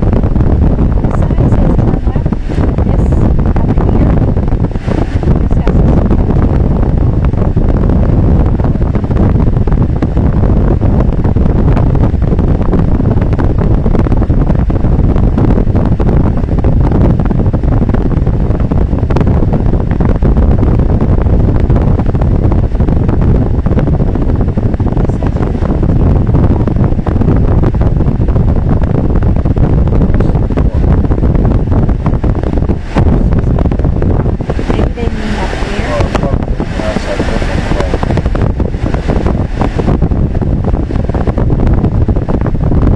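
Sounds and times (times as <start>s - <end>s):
road and wind noise in car: 0.0s - 42.9s.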